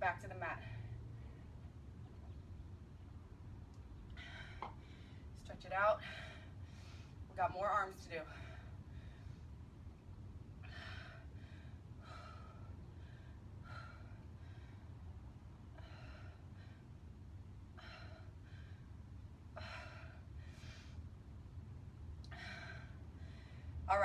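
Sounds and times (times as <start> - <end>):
low steady hum: 0.0 - 24.0
woman breathing heavily: 4.0 - 7.4, 8.2 - 23.9.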